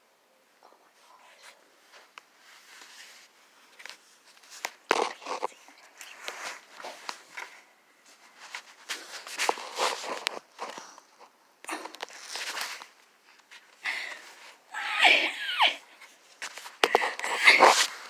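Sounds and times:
crunches and rustles: 0:01.4 - 0:14.6, 0:16.0 - 0:18.0
shuffling footsteps: 0:01.8 - 0:11.4, 0:16.0 - 0:18.0.

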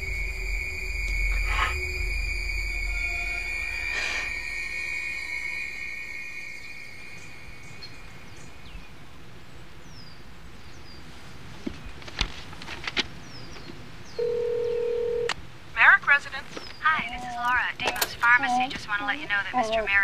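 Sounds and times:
musical drone with high tone: 0:00.0 - 0:09.2
birds chirping: 0:00.0 - 0:12.0, 0:13.0 - 0:15.2, 0:15.8 - 0:20.0.

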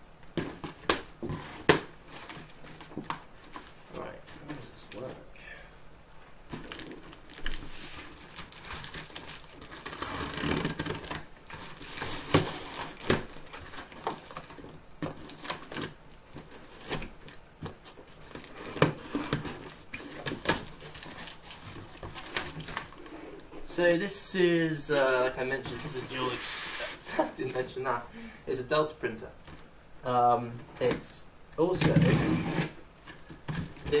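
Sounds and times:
cardboard rustling and scraping: 0:00.4 - 0:05.3, 0:06.5 - 0:23.8, 0:25.4 - 0:27.5, 0:31.6 - 0:34.0.

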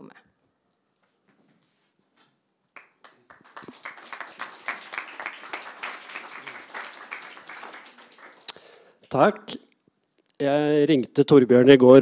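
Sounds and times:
audience applauding: 0:02.8 - 0:09.1.

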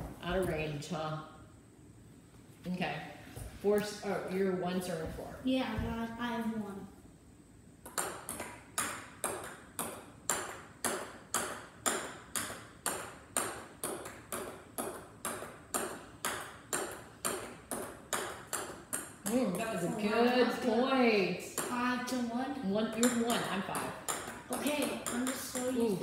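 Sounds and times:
ping pong ball clicks: 0:07.8 - 0:19.7, 0:23.0 - 0:26.0.

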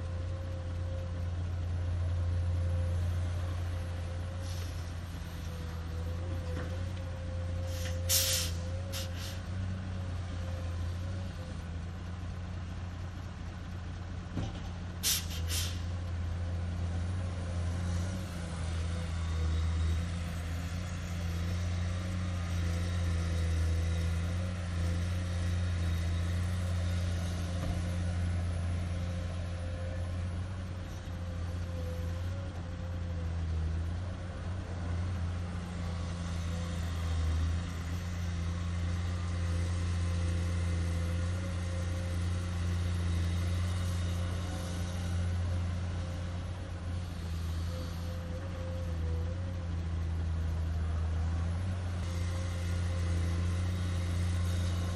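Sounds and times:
excavator diesel engine droning: 0:00.0 - 0:54.9
sharp air hisses: 0:07.7 - 0:09.5, 0:15.0 - 0:15.9.

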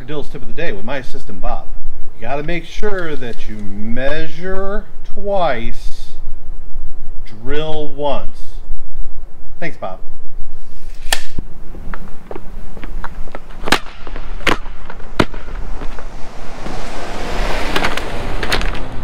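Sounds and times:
rush of noise: 0:00.0 - 0:19.0
sharp cracking impacts: 0:10.8 - 0:19.0.

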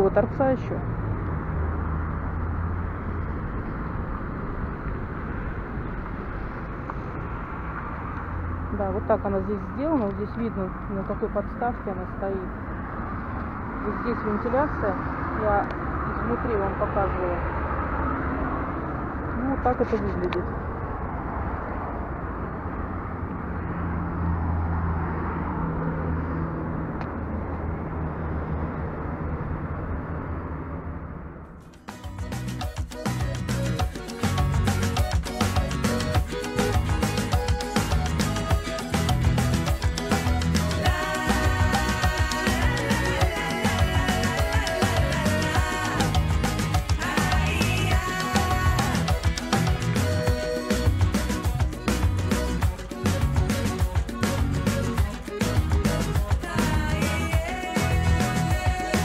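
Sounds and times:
outdoor background noise: 0:00.0 - 0:59.0
road traffic rumble: 0:00.0 - 0:59.0
vehicle engine humming: 0:00.0 - 0:59.0.

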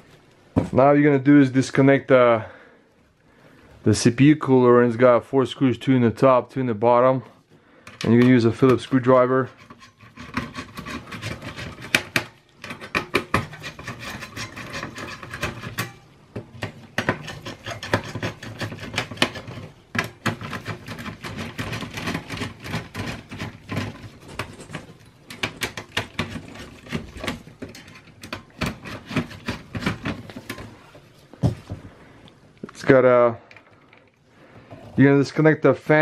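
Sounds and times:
screwdriver scraping in screw heads: 0:07.9 - 0:16.0, 0:16.6 - 0:30.8
metal heatsink handling: 0:07.9 - 0:30.9.

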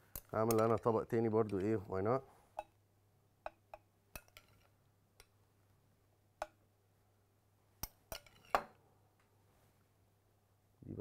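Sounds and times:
metal spoon clinking on plates: 0:00.1 - 0:01.7, 0:03.4 - 0:05.3, 0:07.8 - 0:08.8.

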